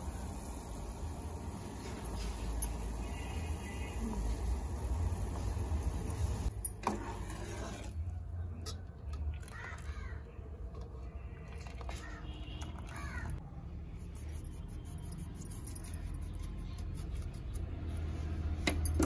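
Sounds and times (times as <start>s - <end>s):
crow cawing: 9.5s - 10.2s.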